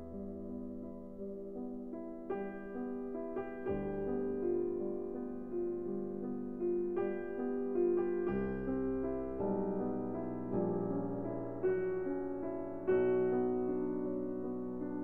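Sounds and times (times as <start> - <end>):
slow solo piano chords: 0.0 - 15.0.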